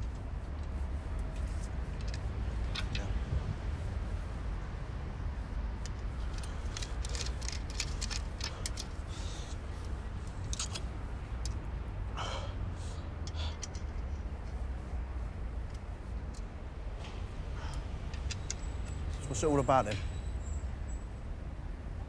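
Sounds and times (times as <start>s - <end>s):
sharp crackling clicks: 5.8s - 11.6s, 17.7s - 19.4s.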